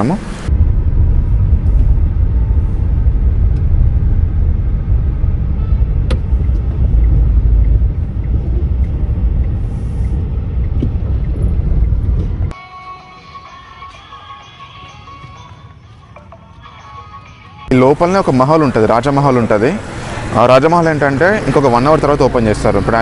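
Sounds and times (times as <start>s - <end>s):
car engine and tyre rumble: 0.0s - 12.5s, 18.0s - 23.0s.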